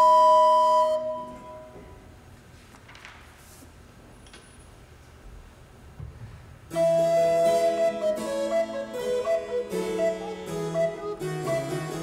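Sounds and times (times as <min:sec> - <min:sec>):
recorders playing held notes: 0:00.0 - 0:01.9, 0:06.7 - 0:12.0
harpsichord plucked chords: 0:06.8 - 0:12.0.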